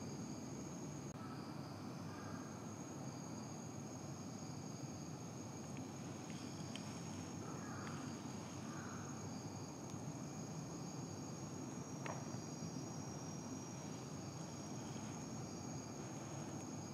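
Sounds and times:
insects trilling: 0.0s - 16.9s
faint clicks: 7.8s - 8.1s.

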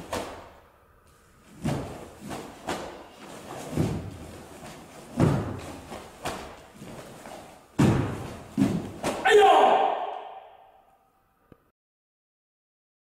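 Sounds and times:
karate uniform snapping: 0.0s - 0.6s, 1.5s - 9.3s
bare feet stamping on wood floor: 1.6s - 9.2s.

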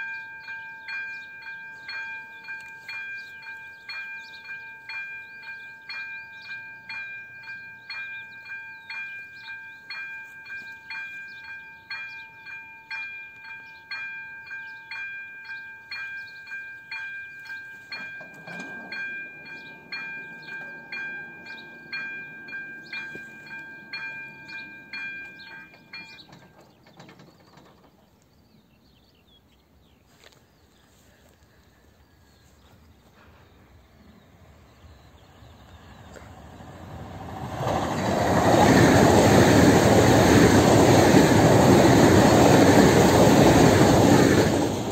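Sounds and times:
level-crossing bell ringing: 0.0s - 26.6s.

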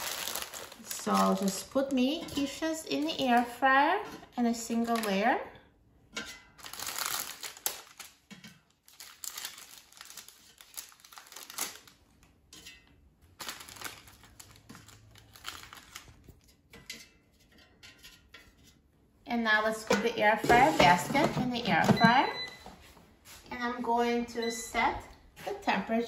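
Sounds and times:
plastic packaging crinkling: 0.0s - 2.6s, 4.7s - 5.2s, 6.6s - 12.3s, 13.4s - 16.4s.

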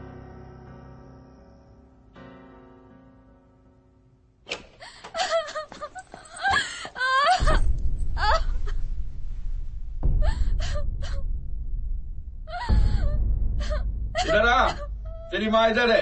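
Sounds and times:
woman sobbing and gasping: 4.5s - 9.1s, 10.1s - 11.4s, 12.5s - 15.3s
woman wailing cries: 4.8s - 8.8s, 10.2s - 11.2s, 12.5s - 15.4s
low rumble: 7.3s - 16.0s.

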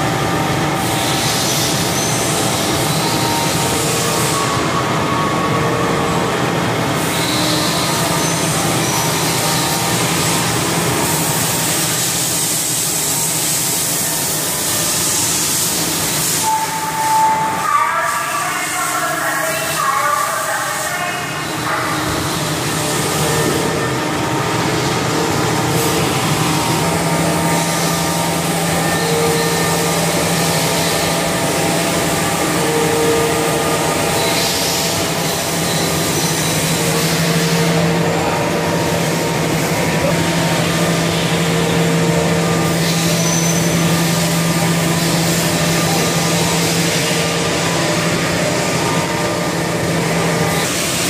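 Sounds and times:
low machine tone: 0.0s - 51.0s
machine mechanical hum: 0.0s - 51.0s.

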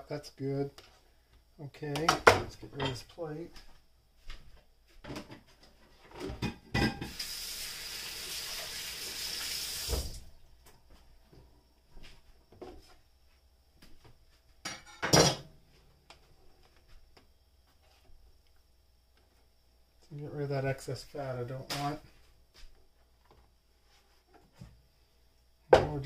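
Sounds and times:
dishes clattering: 6.3s - 7.2s, 14.7s - 15.5s
kitchen tap running: 7.0s - 10.3s.

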